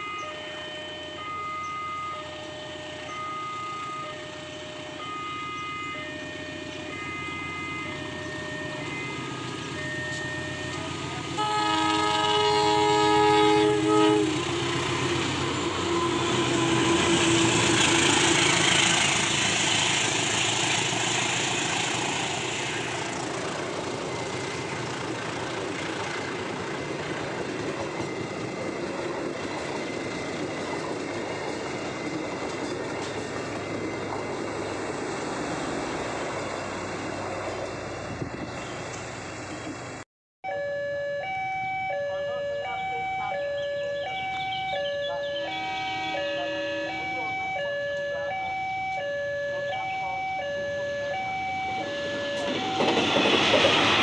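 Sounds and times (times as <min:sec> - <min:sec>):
train rumbling and clattering past: 0:06.1 - 0:40.0, 0:50.5 - 0:54.0
locomotive horn: 0:10.0 - 0:18.9, 0:41.9 - 0:52.8.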